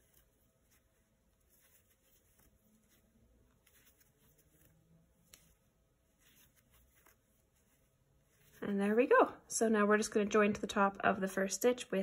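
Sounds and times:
yarn rustling through crochet hook: 0.0s - 9.5s.

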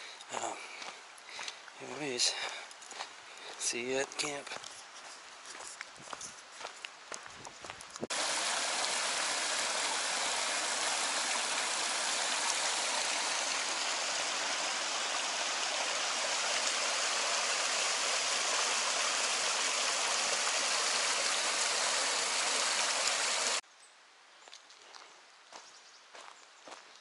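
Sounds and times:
creek rushing over rocks: 8.1s - 23.6s.

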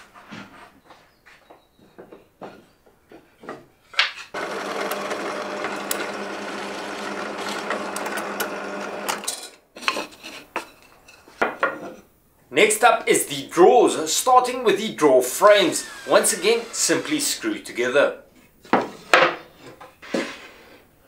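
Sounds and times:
drill press drilling wood: 4.3s - 9.3s, 15.6s - 17.4s.

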